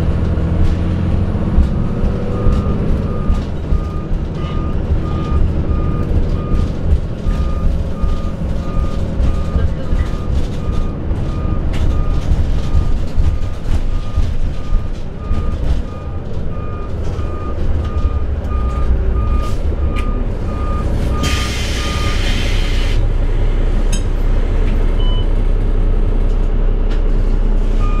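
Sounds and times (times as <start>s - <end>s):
bus diesel engine running: 0.0s - 28.0s
electronic warning beep: 1.8s - 6.7s
compressed air hiss: 21.2s - 23.0s.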